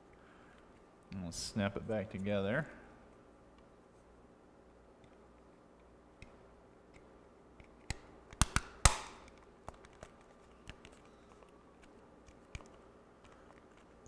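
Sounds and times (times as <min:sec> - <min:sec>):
plastic case snapping clicks: 0:07.9 - 0:09.4.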